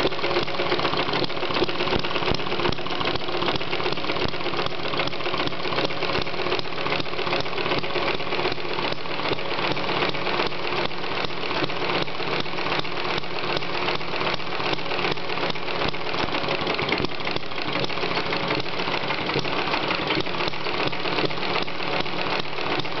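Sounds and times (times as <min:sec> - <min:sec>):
model engine running: 0:00.0 - 0:23.0.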